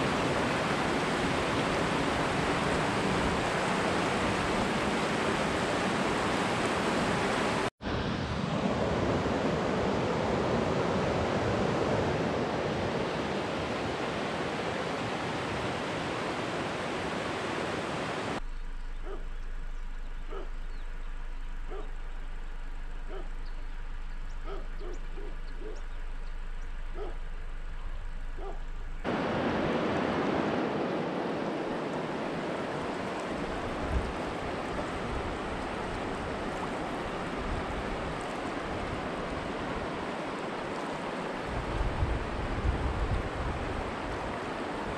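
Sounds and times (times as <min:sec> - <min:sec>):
river water rushing: 0:00.0 - 0:18.4, 0:21.7 - 0:44.9
low steady hum: 0:18.4 - 0:29.1.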